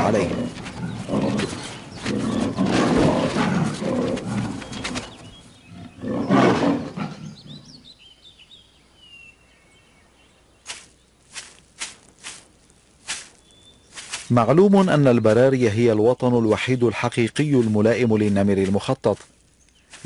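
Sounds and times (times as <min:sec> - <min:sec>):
tiger growling and roaring: 0:00.0 - 0:07.9
birds chirping faintly: 0:00.0 - 0:20.0.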